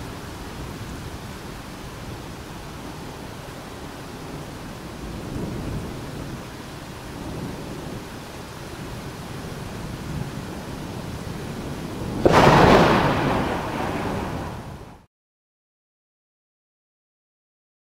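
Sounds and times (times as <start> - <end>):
rumbling rain-like noise: 0.0 - 15.1
loud thunder crack: 12.0 - 15.1.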